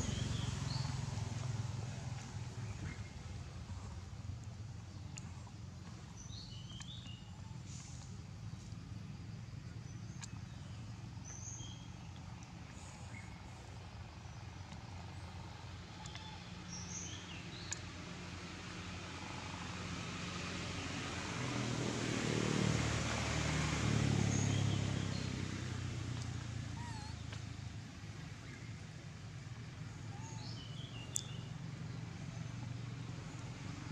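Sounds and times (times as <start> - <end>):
motor vehicle passing: 0.0 - 33.9
bird chirps: 6.2 - 8.0, 16.0 - 17.9, 26.7 - 27.4, 29.9 - 31.5.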